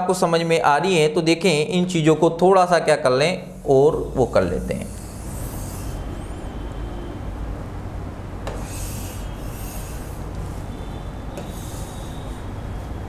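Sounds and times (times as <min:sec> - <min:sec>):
steady low hum: 0:00.0 - 0:13.0
stylus scratching on screen: 0:03.4 - 0:06.5, 0:08.5 - 0:13.0
stylus tap: 0:11.4 - 0:11.6.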